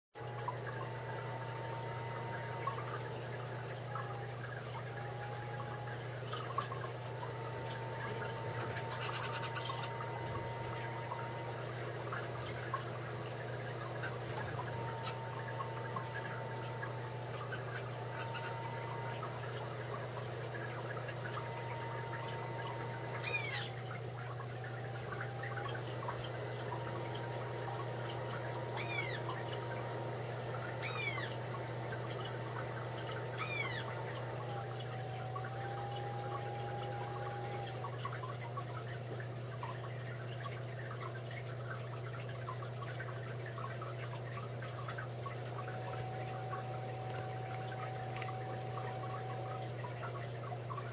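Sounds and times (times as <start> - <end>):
filter low hum: 0.2 - 50.9
water trickling and bubbling: 0.2 - 50.9
short high animal calls: 23.2 - 23.8, 33.4 - 34.0.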